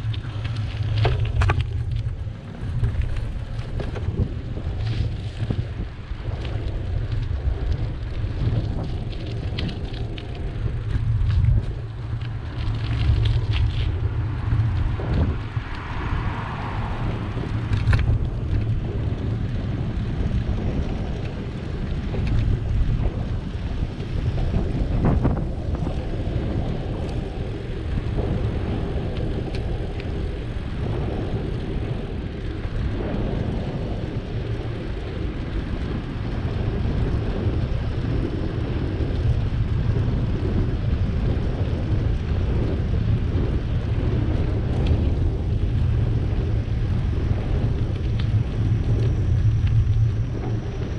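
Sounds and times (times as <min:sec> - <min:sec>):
wind buffeting microphone: 0:00.0 - 0:50.9.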